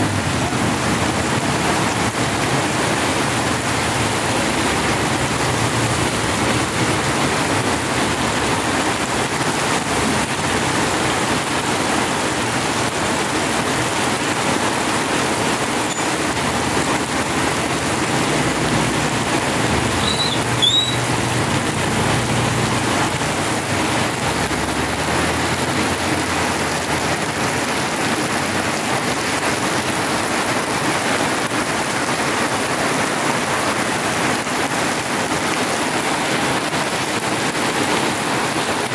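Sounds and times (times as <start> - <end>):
heavy rain pouring on a flooded road: 0.0 - 38.9
high double squeak: 15.8 - 16.2, 20.0 - 21.1.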